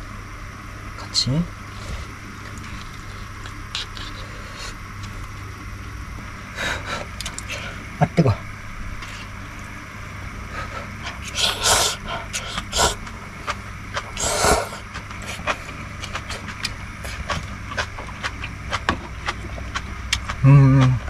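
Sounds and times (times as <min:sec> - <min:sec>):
person slurping noodles: 0:10.7 - 0:13.0, 0:14.0 - 0:16.5.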